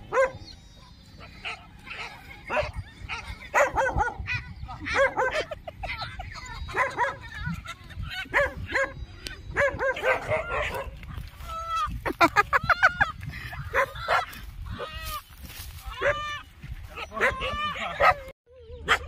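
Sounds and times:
dog barking and yipping: 0.0s - 7.4s, 8.2s - 11.2s, 13.6s - 14.9s, 17.0s - 19.0s.

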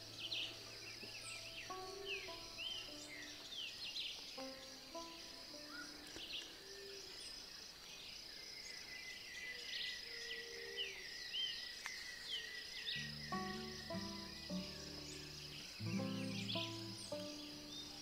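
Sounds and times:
slow soft melody: 0.0s - 6.5s, 13.0s - 18.0s
birds chirping: 0.0s - 18.0s
insect hum: 0.0s - 18.0s.

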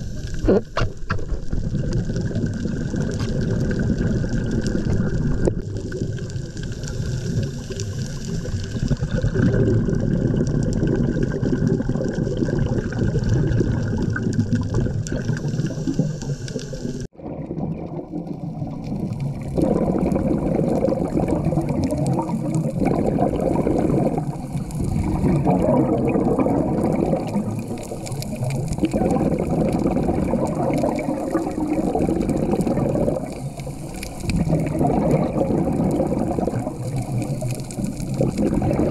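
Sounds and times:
muffled underwater rush: 0.0s - 38.9s.

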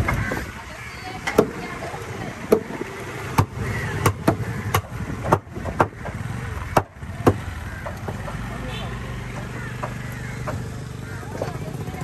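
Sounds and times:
sharp knocks: 2.5s - 8.5s, 9.3s - 10.7s.

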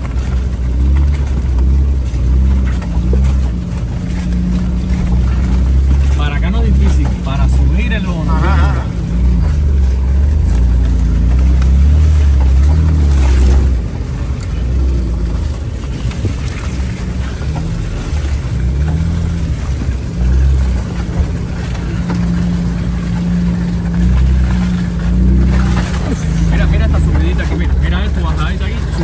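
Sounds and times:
engine working under load: 0.0s - 29.0s.

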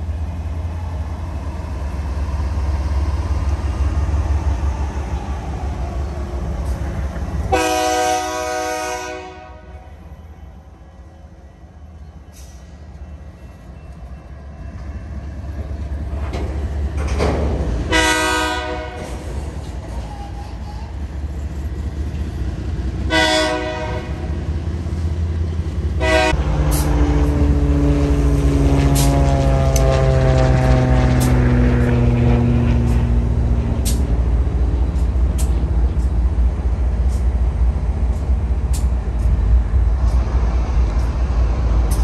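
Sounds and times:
diesel locomotive engines: 0.0s - 42.0s
train horn blasts: 7.5s - 10.0s, 17.8s - 19.2s, 23.1s - 24.3s, 26.0s - 26.9s.

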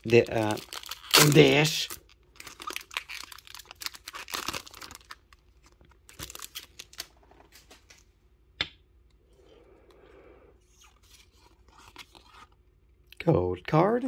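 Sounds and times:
foil wrapper crinkling: 0.0s - 7.8s.

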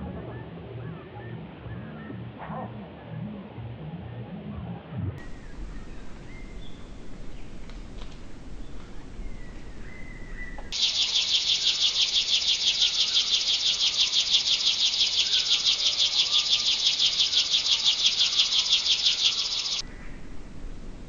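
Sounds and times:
insect pulsing buzz: 10.8s - 19.8s.

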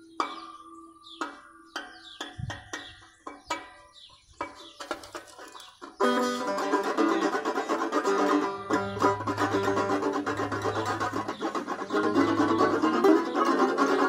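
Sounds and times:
banjo picking: 4.7s - 14.0s.

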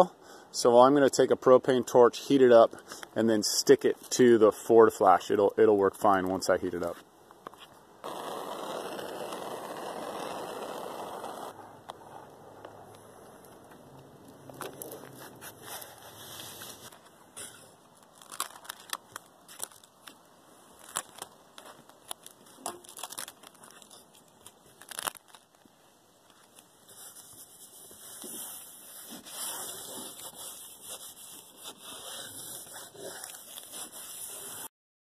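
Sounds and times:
tape crinkling and crackling: 13.2s - 17.2s, 17.8s - 34.7s.

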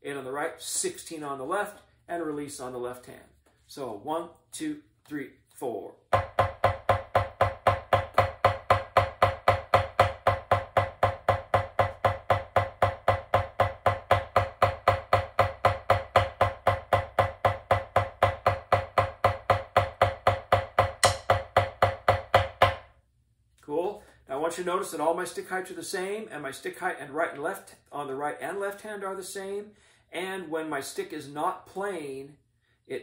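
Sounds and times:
drumsticks striking a drum: 6.2s - 22.8s.

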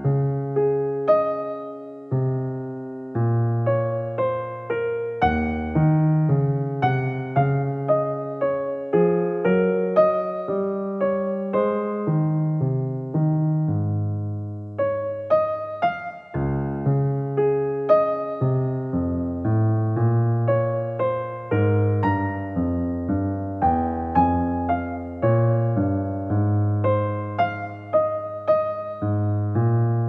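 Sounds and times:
gentle solo piano melody: 0.0s - 30.0s.

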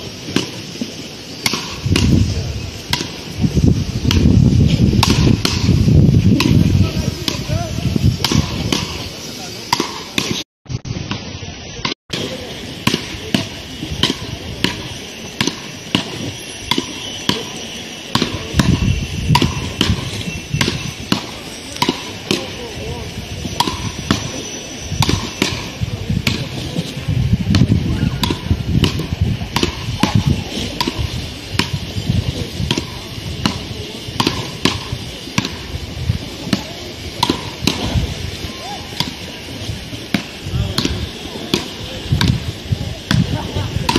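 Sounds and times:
paddles hitting ball: 4.1s - 4.3s, 5.0s - 5.8s, 25.0s - 31.8s, 32.6s - 35.6s, 36.4s - 38.0s, 40.1s - 42.4s.

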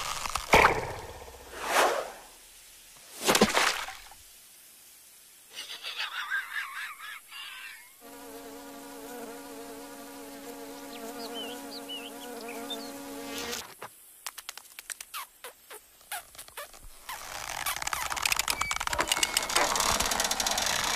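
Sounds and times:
insect wings buzzing: 8.0s - 20.9s
short warbling squeaks: 15.1s - 20.9s.

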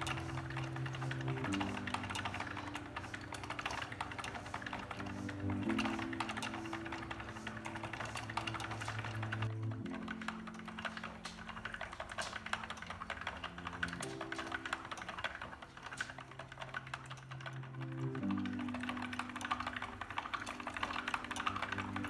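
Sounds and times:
mechanism clicking and clattering: 0.0s - 22.0s.

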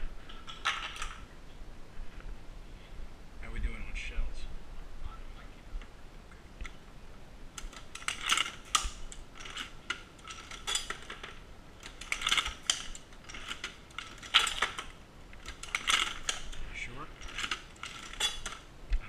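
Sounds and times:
reloading press clanking and rattling: 0.3s - 1.2s, 7.6s - 18.7s.

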